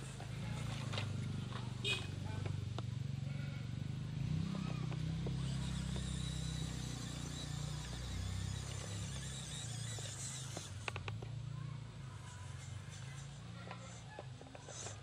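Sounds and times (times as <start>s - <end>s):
electric motor and drivetrain humming: 0.0s - 15.0s.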